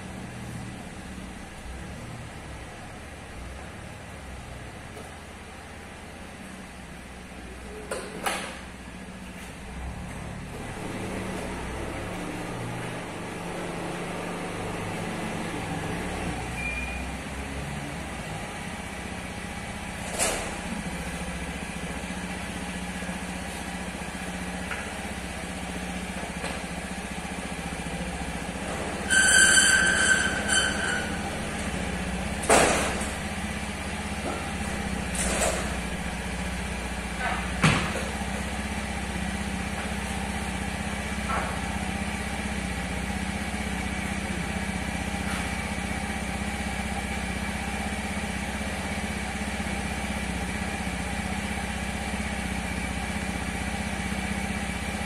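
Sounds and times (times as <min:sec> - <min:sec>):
scooter engine idling: 0:00.0 - 0:55.0
loud high-pitched squeal: 0:28.9 - 0:31.6.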